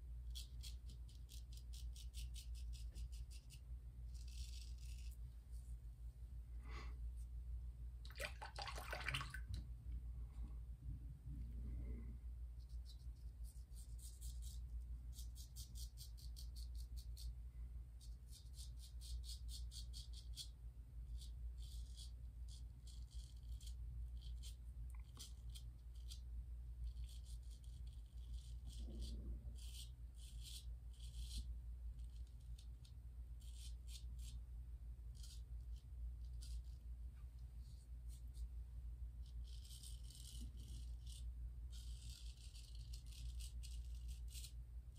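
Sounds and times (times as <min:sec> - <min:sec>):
razor scraping stubble: 0:00.3 - 0:05.2, 0:39.2 - 0:44.6.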